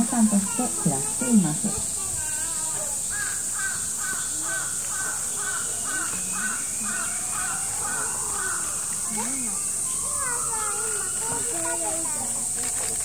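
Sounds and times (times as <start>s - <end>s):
steady high hiss: 0.0s - 12.8s.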